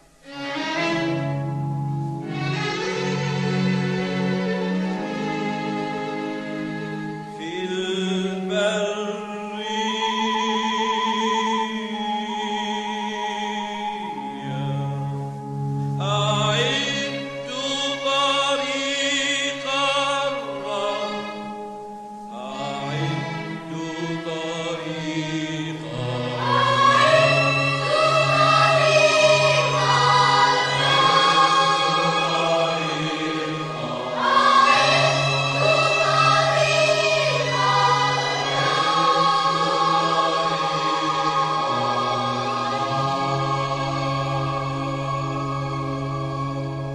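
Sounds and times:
mixed choir singing: 22.3s - 46.9s.

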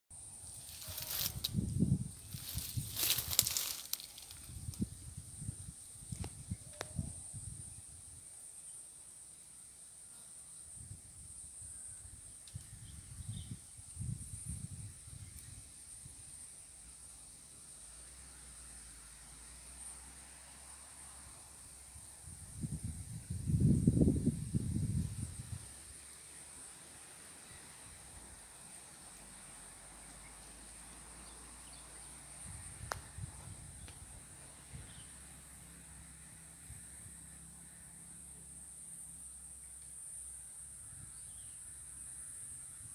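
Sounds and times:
insects chirring: 0.2s - 42.9s
high-pitched insect drone: 0.4s - 8.0s
wind rumbling on microphone: 0.5s - 8.0s, 12.1s - 15.7s, 22.2s - 25.7s, 32.4s - 35.0s.

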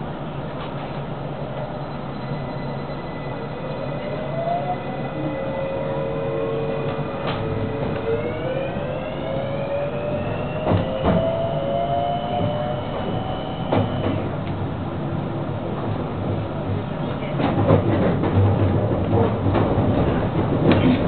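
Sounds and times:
train running rumble: 0.0s - 21.0s
electric train motor whine: 1.5s - 14.5s.

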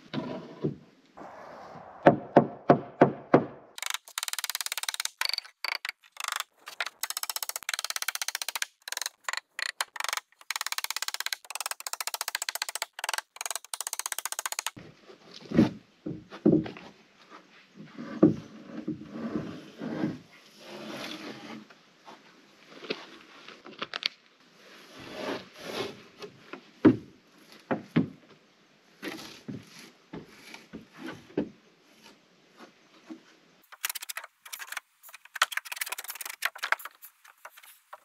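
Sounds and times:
lumber knocks and thumps: 15.5s - 16.9s, 27.7s - 28.2s
fast thin crackling: 33.7s - 38.0s.

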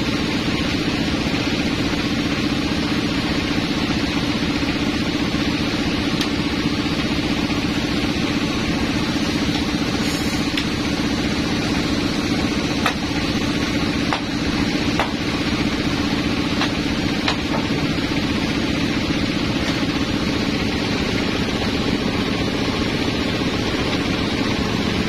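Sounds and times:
band saw machinery humming: 0.0s - 25.0s
sharp knocks of log shifting: 14.0s - 15.3s, 16.5s - 18.0s.

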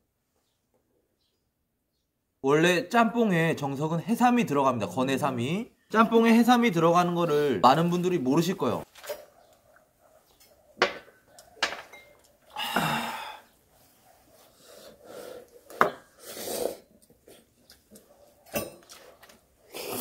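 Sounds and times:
glasses clinking: 10.8s - 13.0s, 18.5s - 18.9s
person sighing ahh: 12.5s - 13.5s
sniffs: 13.2s - 17.5s
noodle slurping: 14.7s - 18.0s, 18.8s - 20.0s.

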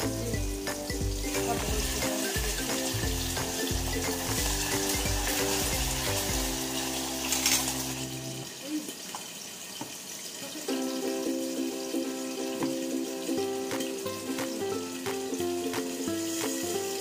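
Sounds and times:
background music with bass: 0.0s - 7.2s
food sizzling in a pan: 0.0s - 17.0s
utensil stirring saucepan: 0.9s - 11.0s.

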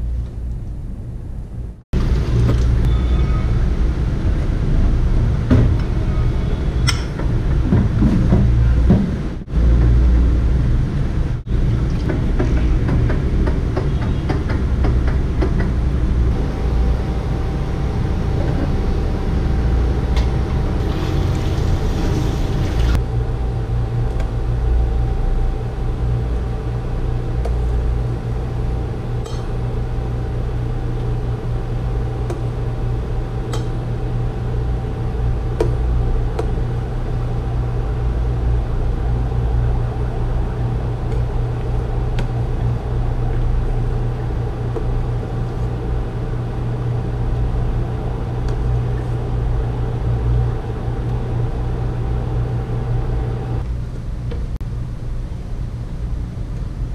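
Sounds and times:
induction cooktop hum: 0.0s - 56.9s
thin steady whine: 15.9s - 56.9s
ladle clinking against pot: 29.2s - 29.5s.

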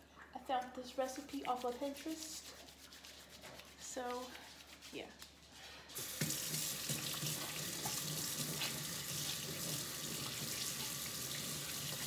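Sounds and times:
tap running into sink: 6.2s - 11.0s.

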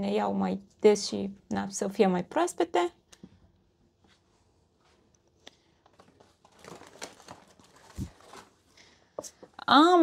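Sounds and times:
shopping bag rustling: 6.0s - 8.8s.

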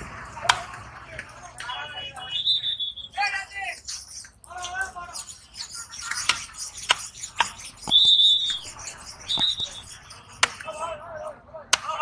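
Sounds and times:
high-pitched squeal: 5.2s - 10.4s
cleaver chopping on wood: 7.8s - 10.6s.

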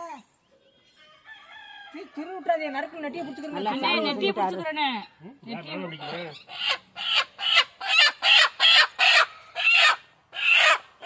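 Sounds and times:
chicken squawking in distress: 6.0s - 11.0s.

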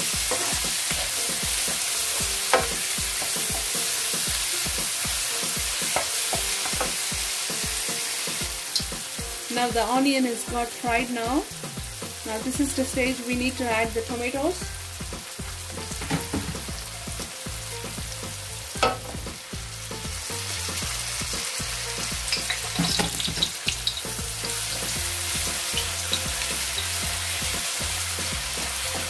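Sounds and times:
onions sizzling in oil: 0.0s - 29.0s
spatula knocking against pan: 0.3s - 3.8s, 18.8s - 19.3s.

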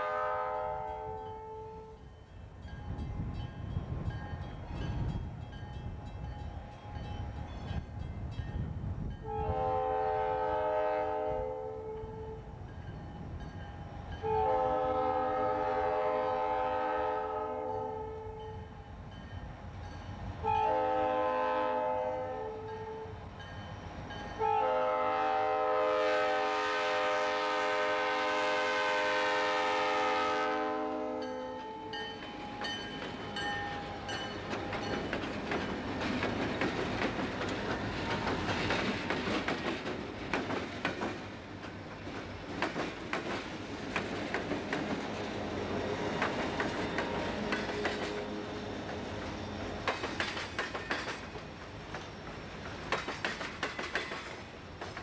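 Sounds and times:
locomotive air horn blasts: 0.0s - 2.0s, 9.2s - 12.5s, 14.2s - 18.6s, 20.4s - 23.2s, 24.4s - 31.9s
diesel locomotive rumble: 32.3s - 55.0s.

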